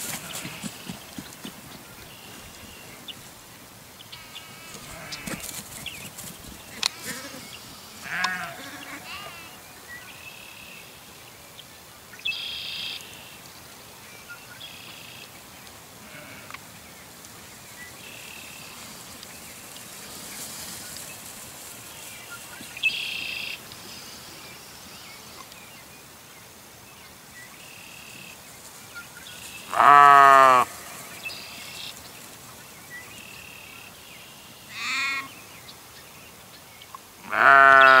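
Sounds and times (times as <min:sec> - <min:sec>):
sheep bleating: 0:04.6 - 0:05.5, 0:06.8 - 0:09.6, 0:16.0 - 0:16.5, 0:29.7 - 0:31.0, 0:37.3 - 0:38.0.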